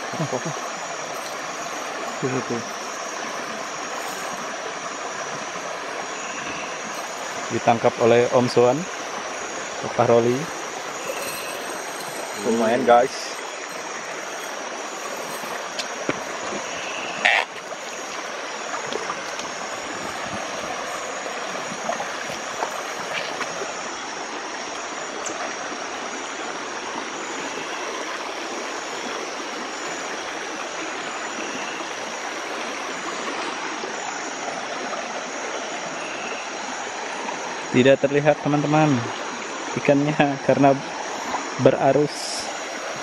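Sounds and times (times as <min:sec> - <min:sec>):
crickets chirring: 0:00.0 - 0:43.0
river current rushing: 0:00.0 - 0:43.0.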